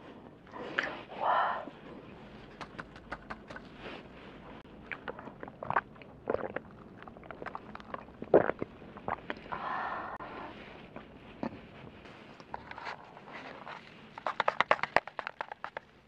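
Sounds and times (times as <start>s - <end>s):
swallowing gulps: 4.7s - 10.2s
drinking through a straw: 4.8s - 10.2s.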